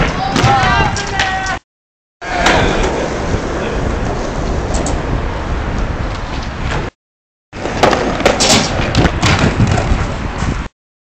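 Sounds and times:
skateboard rolling on concrete: 2.2s - 7.0s, 7.6s - 10.7s.

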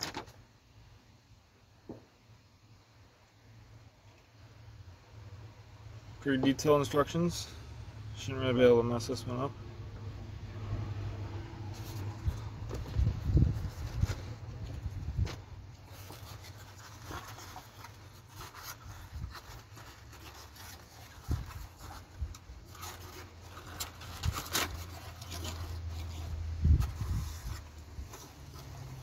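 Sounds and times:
wind rumble on microphone: 12.1s - 15.5s, 26.5s - 27.7s.

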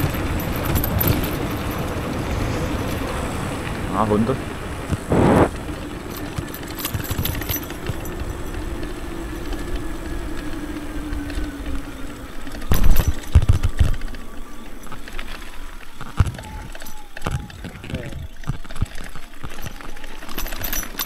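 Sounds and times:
wind on microphone: 0.0s - 11.9s
electric motor whining: 0.0s - 20.4s
tyre noise on path: 0.0s - 21.0s.

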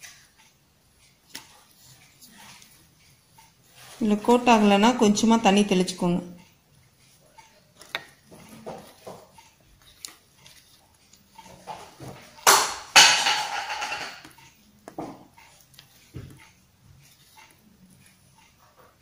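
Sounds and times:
hands mixing food in steel bowl: 1.0s - 19.0s.

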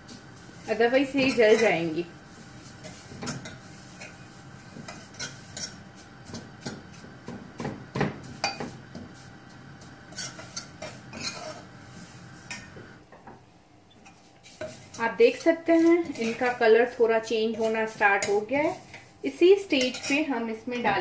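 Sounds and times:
metal ladle scraping saucepan: 0.1s - 6.7s, 10.1s - 12.7s, 14.0s - 21.0s.

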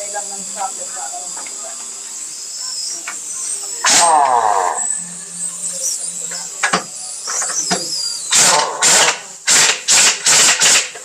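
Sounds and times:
air hiss: 0.0s - 11.0s
impact wrench hammering: 6.6s - 11.0s.

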